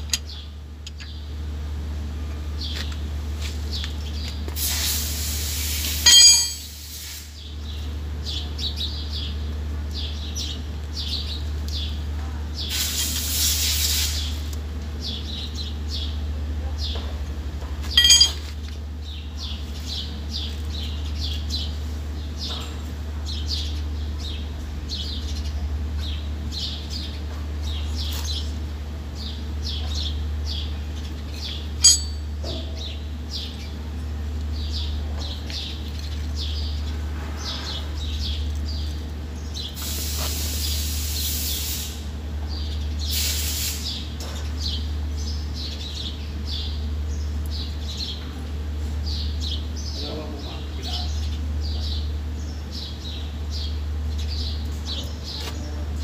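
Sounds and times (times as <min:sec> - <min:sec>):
small birds chirping: 0:00.0 - 0:01.5, 0:02.5 - 0:04.5, 0:05.6 - 0:56.0
steady low hum: 0:00.0 - 0:12.7, 0:14.2 - 0:39.8
short bursts of hissing: 0:04.6 - 0:06.0, 0:06.7 - 0:07.4, 0:12.7 - 0:14.5, 0:39.8 - 0:42.1, 0:43.1 - 0:44.0.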